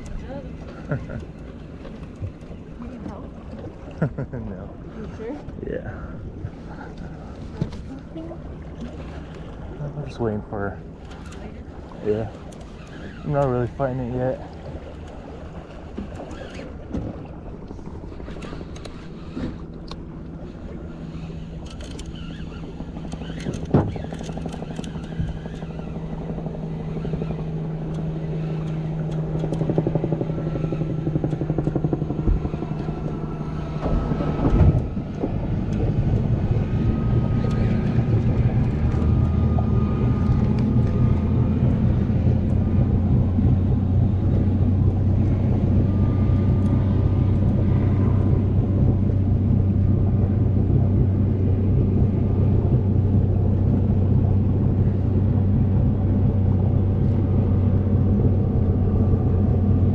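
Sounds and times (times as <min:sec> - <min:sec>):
boat engine running: 0:00.0 - 0:59.9.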